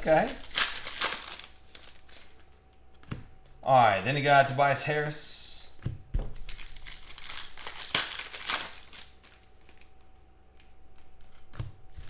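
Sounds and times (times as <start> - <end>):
card pack wrapper crinkling: 0.0 - 2.5, 6.2 - 12.0.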